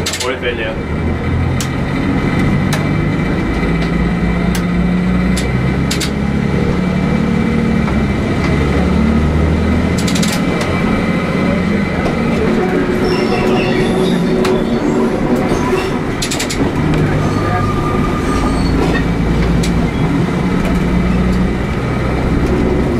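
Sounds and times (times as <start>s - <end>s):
diesel railcar engine running: 0.0s - 22.9s
sharp clicks: 5.3s - 6.2s, 9.9s - 10.7s, 16.2s - 16.7s, 19.4s - 19.9s.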